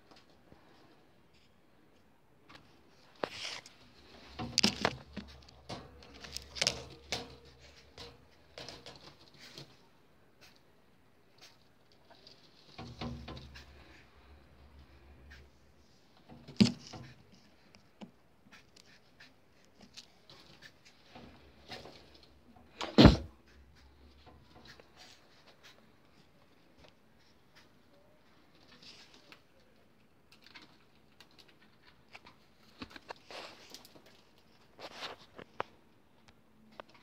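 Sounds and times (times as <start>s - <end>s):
birds scratching: 2.9s - 9.8s.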